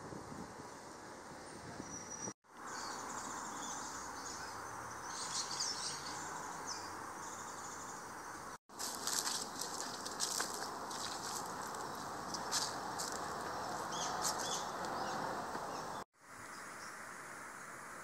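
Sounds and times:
steady outdoor hiss: 0:00.0 - 0:18.0
birds chirping: 0:01.4 - 0:16.9
footsteps on dry leaves: 0:08.7 - 0:15.8.

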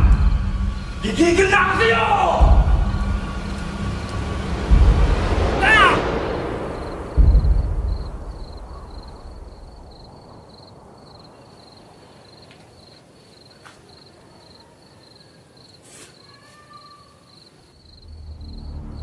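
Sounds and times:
crickets chirping: 0:00.0 - 0:19.0
faint night ambience: 0:00.0 - 0:19.0.

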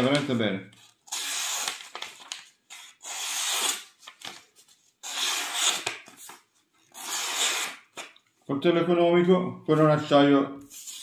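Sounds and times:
knife slicing paper: 0:01.1 - 0:08.0.

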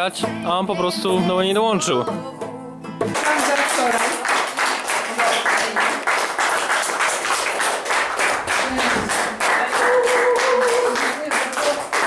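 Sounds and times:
small group applauding: 0:03.0 - 0:12.0.

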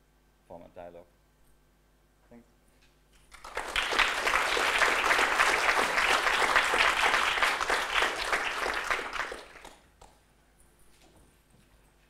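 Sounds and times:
audience applauding: 0:03.3 - 0:10.1.

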